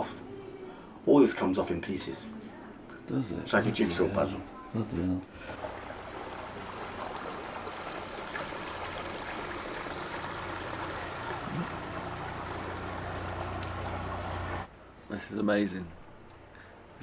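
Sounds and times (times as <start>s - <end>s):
city background noise: 0.0s - 17.0s
motorboat engine humming: 5.3s - 14.7s
water hissing: 5.4s - 14.7s.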